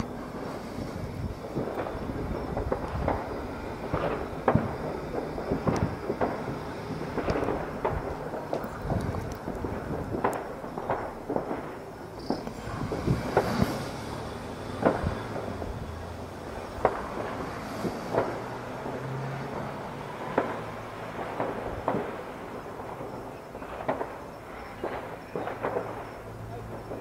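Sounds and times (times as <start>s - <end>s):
background rumble and crackle: 0.0s - 27.0s
fireworks bangs: 0.0s - 27.0s.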